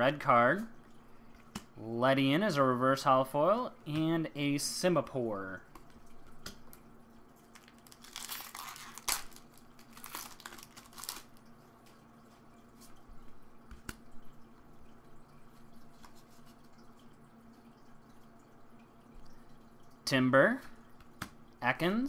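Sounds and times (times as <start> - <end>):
faint steady hum: 0.0 - 22.0
foil wrapper crinkling and tearing: 7.5 - 11.4.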